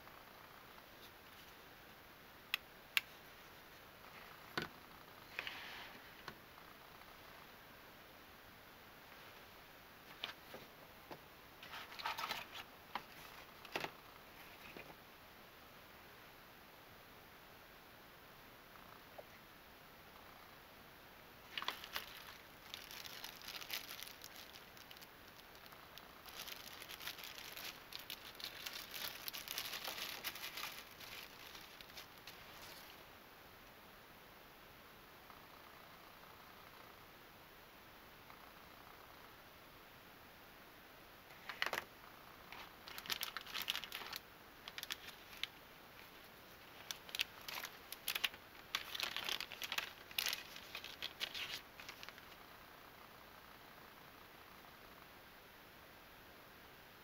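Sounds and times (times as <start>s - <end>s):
plastic bag crinkling: 11.6s - 13.9s, 21.4s - 33.0s, 42.5s - 52.4s.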